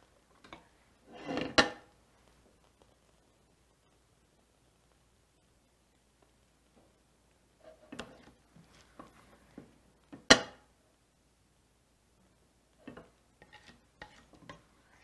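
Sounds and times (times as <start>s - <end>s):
ladle scraping and knocking in saucepan: 7.6s - 8.4s, 12.8s - 15.0s.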